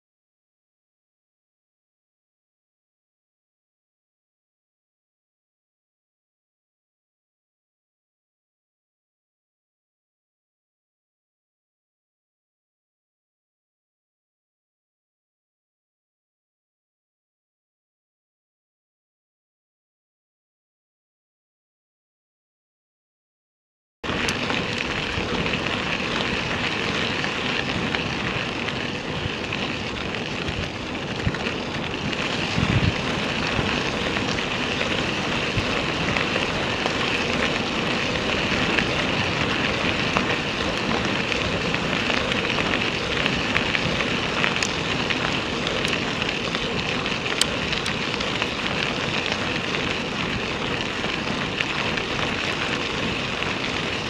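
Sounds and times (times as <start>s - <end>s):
bicycle tyres on gravel: 24.0s - 54.0s
wind on microphone: 24.1s - 54.0s.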